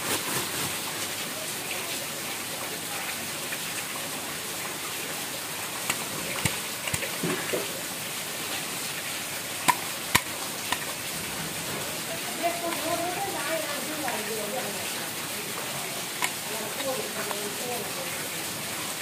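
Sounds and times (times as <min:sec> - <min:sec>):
plastic bag crinkling: 0:00.0 - 0:01.1
steady hiss: 0:00.0 - 0:19.0
sharp clicks and taps: 0:05.8 - 0:07.7, 0:09.6 - 0:11.0, 0:16.2 - 0:17.4.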